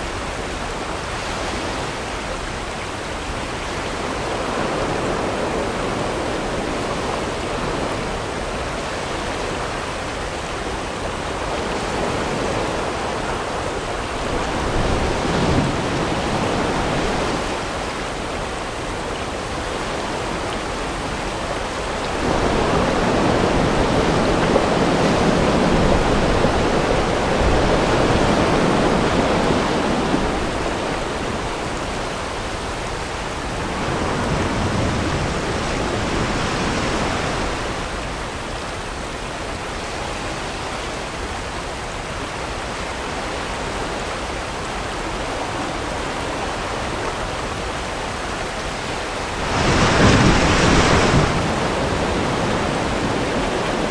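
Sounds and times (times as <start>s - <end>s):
river rapids rushing: 0.0s - 53.9s.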